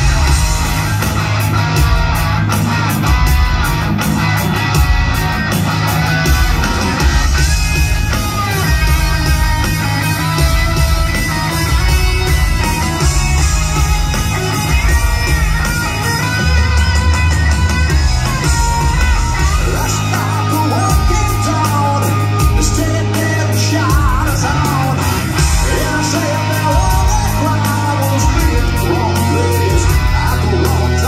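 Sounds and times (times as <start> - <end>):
bass guitar: 0.0 - 31.0
drums: 0.0 - 31.0
electric guitars: 0.0 - 31.0
man singing loudly: 19.6 - 31.0.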